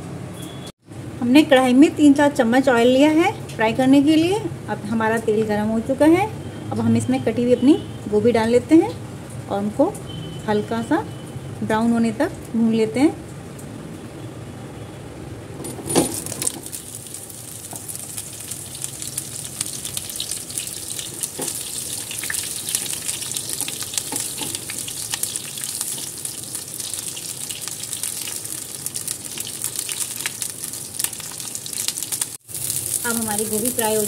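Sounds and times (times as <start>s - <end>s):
food sizzling in hot oil: 16.1s - 34.0s
wooden spatula turning food: 16.7s - 34.0s.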